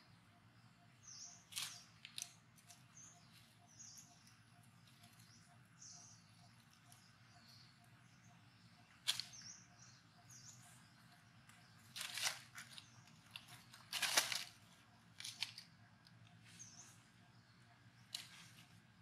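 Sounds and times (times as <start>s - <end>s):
dry leaves rustling and crackling: 11.8s - 15.7s.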